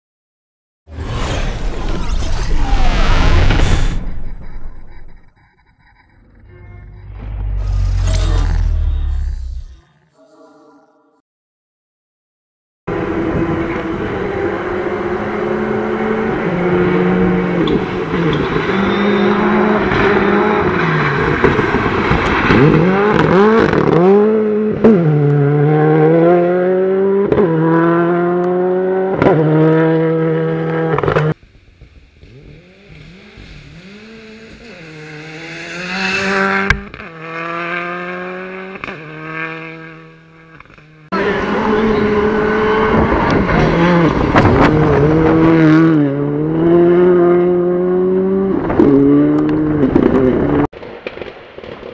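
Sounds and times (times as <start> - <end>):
rally car engine revving: 12.9 - 50.7.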